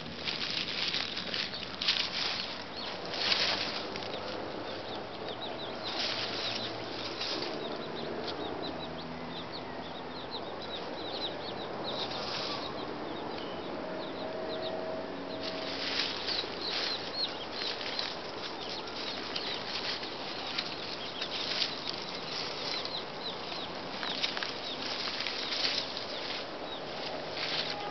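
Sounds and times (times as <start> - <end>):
rustling: 0.0 - 4.4, 5.9 - 7.6, 15.4 - 27.9
small birds chirping: 0.0 - 27.9.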